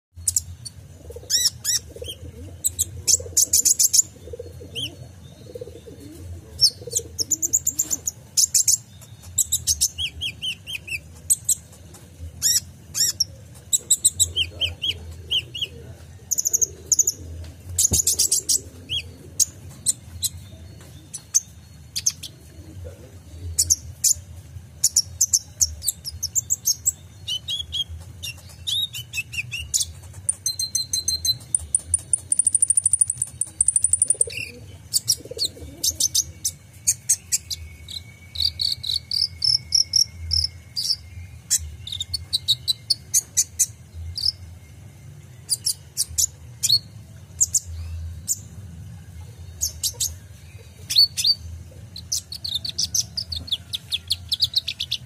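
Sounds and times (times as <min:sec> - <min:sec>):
sunbird chirping and trilling: 0:00.2 - 0:11.8, 0:23.2 - 0:55.0.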